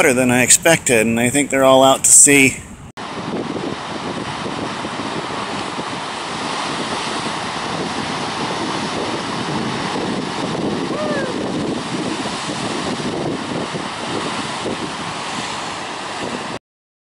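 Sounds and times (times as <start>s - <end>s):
wind buffeting microphone: 0.0s - 16.6s
surf breaking on rocks: 3.0s - 16.6s
faint call: 10.9s - 11.4s.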